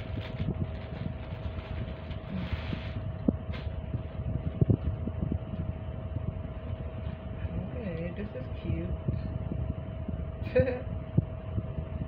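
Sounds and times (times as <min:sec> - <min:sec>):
plastic packaging crinkle: 0:00.0 - 0:05.0, 0:06.6 - 0:07.3
faint hum: 0:00.0 - 0:12.0
low rumble: 0:00.0 - 0:12.0.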